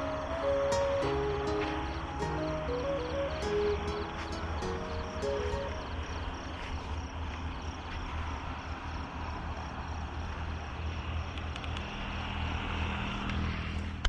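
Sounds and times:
faint high chirping: 0.0s - 6.6s
low rumbling night noise: 0.0s - 14.0s.

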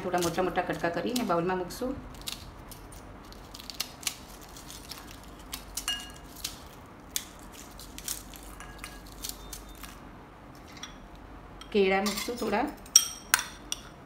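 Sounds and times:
fried bread crackling and snapping: 2.0s - 10.1s
pieces clinking on ceramic plate: 5.8s - 6.2s.

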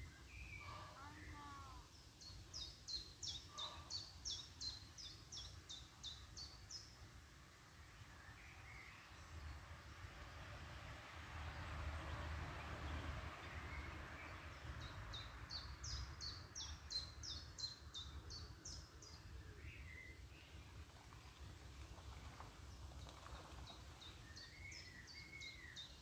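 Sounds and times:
small songbird singing: 0.0s - 7.1s, 12.8s - 20.7s, 23.6s - 26.0s.

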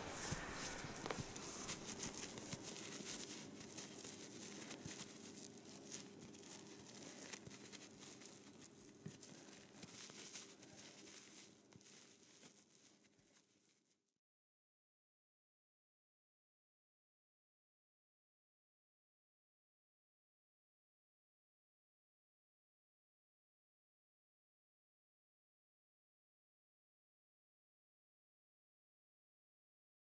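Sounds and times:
low steady hum: 0.0s - 13.6s
crackling and rustling: 0.0s - 14.1s.

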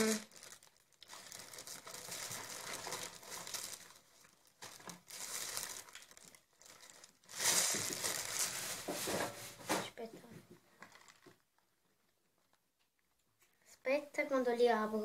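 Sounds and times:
plastic packaging crinkling: 0.0s - 9.8s, 10.8s - 11.8s.

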